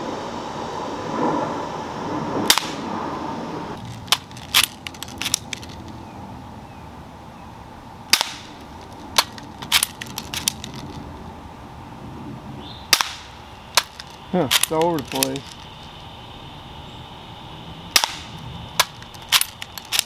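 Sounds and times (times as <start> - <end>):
air pistol firing snaps: 2.5 - 2.8, 8.1 - 8.6, 12.9 - 15.4, 17.9 - 20.0.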